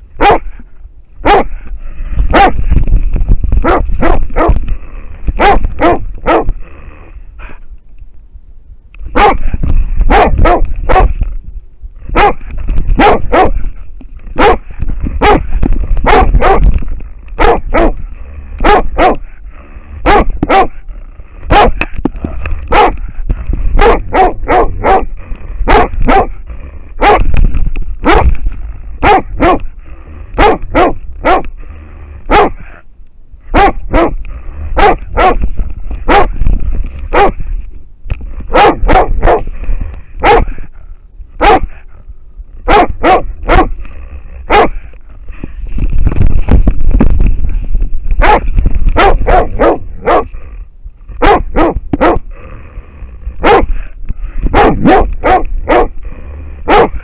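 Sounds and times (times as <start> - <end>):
low rumble of dog moving: 0.0 - 57.0
dog barking: 0.2 - 0.6, 1.2 - 1.6, 2.3 - 2.6, 3.6 - 4.6, 5.4 - 6.5, 9.1 - 9.5, 10.1 - 11.2, 12.1 - 12.4, 13.0 - 13.6, 14.4 - 16.7, 17.4 - 18.0, 18.6 - 19.3, 20.0 - 20.8, 21.5 - 21.8, 22.7 - 23.0, 23.8 - 25.1, 25.7 - 26.4, 27.0 - 27.3, 28.0 - 28.3, 29.0 - 29.7, 30.4 - 31.5, 32.3 - 32.7, 33.5 - 34.2, 34.8 - 35.4, 36.1 - 36.4, 37.1 - 37.4, 38.5 - 39.5, 40.2 - 40.6, 41.4 - 41.8, 42.6 - 43.8, 44.5 - 44.8, 48.2 - 50.4, 51.2 - 52.2, 53.4 - 53.8, 54.5 - 55.9, 56.7 - 57.0.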